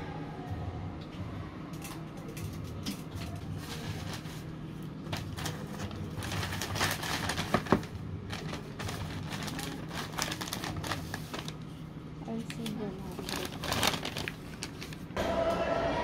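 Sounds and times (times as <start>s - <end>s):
paper bag rustling: 3.4s - 11.8s, 12.6s - 15.2s.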